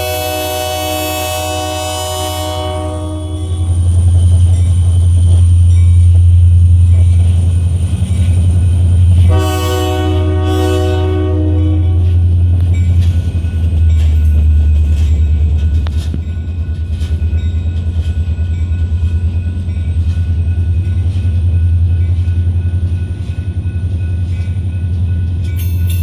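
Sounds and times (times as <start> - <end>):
freight train rumbling past: 0.0 - 26.0
wheels clicking over rail joints: 12.0 - 21.4.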